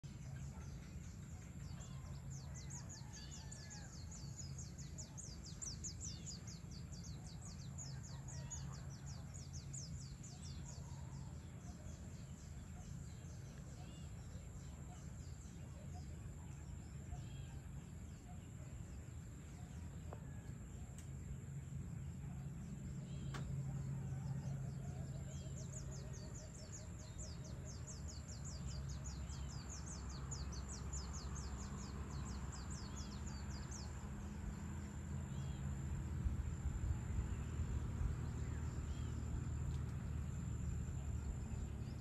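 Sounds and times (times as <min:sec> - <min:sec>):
low background rumble: 0:00.0 - 0:42.0.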